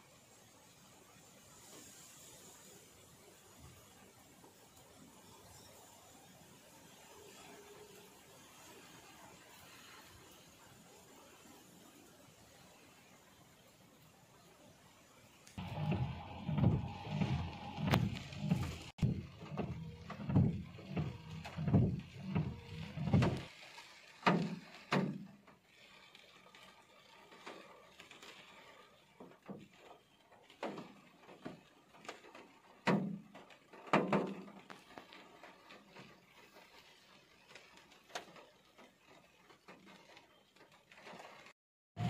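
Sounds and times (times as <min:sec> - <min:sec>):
low outside rumble: 0:02.5 - 0:41.5
raindrops knocking on car roof: 0:15.6 - 0:41.5.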